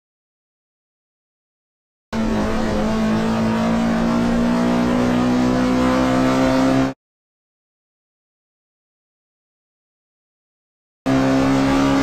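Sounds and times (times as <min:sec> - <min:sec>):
car engine accelerating: 0:02.2 - 0:07.0, 0:11.1 - 0:12.0.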